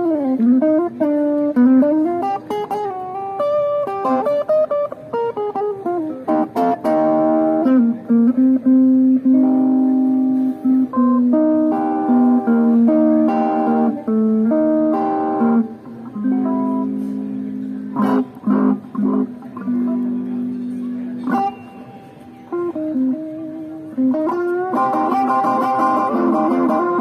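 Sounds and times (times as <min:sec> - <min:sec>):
guitar playing: 0:00.0 - 0:27.0.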